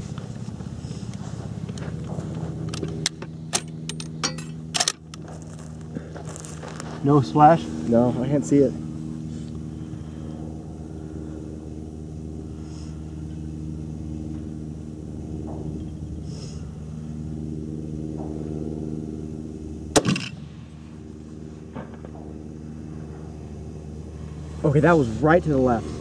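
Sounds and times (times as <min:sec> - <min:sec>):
engine hum: 0:00.0 - 0:26.0
rifle shot: 0:19.9 - 0:20.6.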